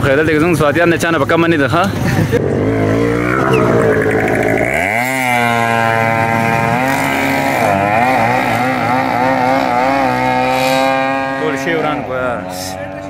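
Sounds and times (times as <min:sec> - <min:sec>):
rear tyre spinning: 0:02.4 - 0:09.2
motorcycle engine revving high: 0:02.4 - 0:12.3.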